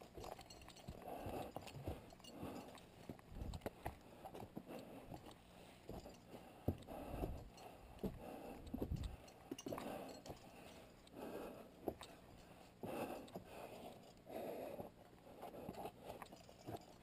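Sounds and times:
faint footsteps on rock: 0.1s - 10.4s.

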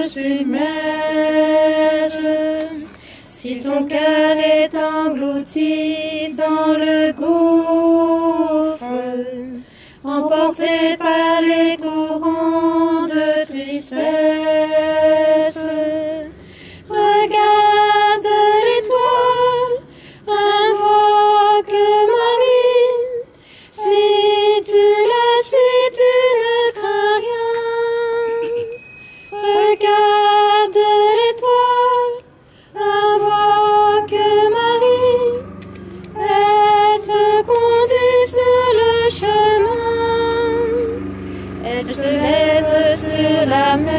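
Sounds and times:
woman singing a hymn: 0.0s - 43.9s.

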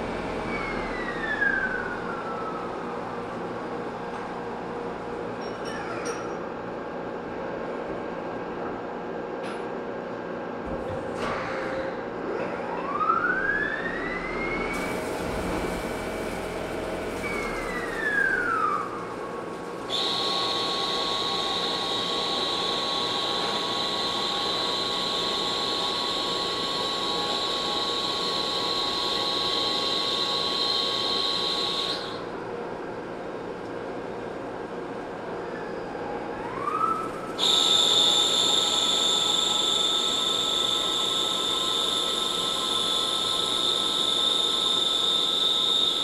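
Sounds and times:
lathe motor whine: 13.2s - 32.4s, 35.9s - 46.0s
steady high whine: 13.8s - 33.6s, 35.2s - 46.0s.

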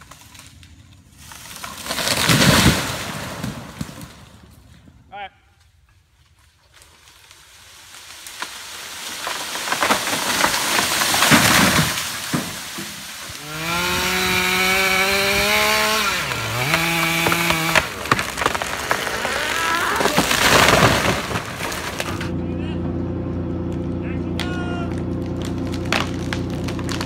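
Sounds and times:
wood cracking and crashing: 0.0s - 4.4s, 6.2s - 22.4s, 23.6s - 27.0s
chainsaw running: 13.3s - 27.0s.

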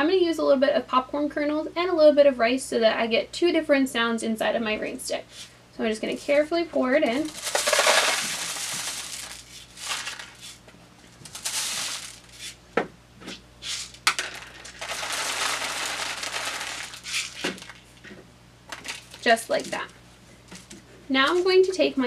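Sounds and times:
grains pattering down a tube: 7.1s - 10.6s, 11.2s - 12.6s, 13.9s - 18.0s.

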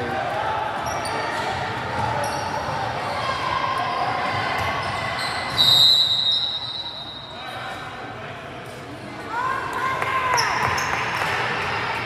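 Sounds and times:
crowd voices: 0.0s - 12.0s
referee's whistle blast: 5.5s - 7.4s.

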